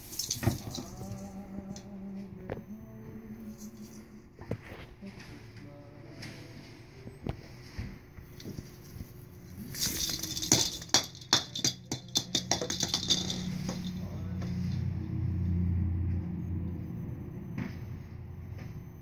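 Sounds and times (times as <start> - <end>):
ornaments rattling and jingling: 0.0 - 1.4, 9.4 - 14.2
low steady hum: 0.0 - 19.0.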